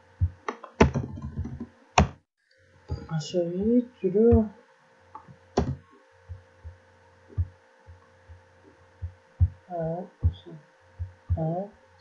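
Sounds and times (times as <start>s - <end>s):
soft dull low thumps: 0.0s - 2.2s, 2.9s - 4.5s, 5.2s - 11.8s
low hum: 2.5s - 12.0s.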